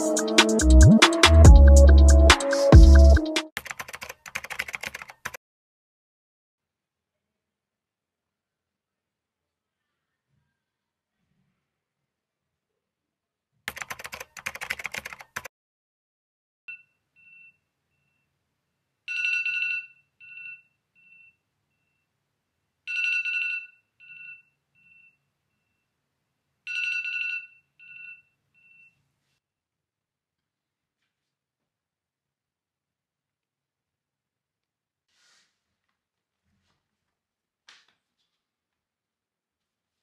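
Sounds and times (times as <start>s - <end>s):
rustling noise: 35.1s - 38.5s.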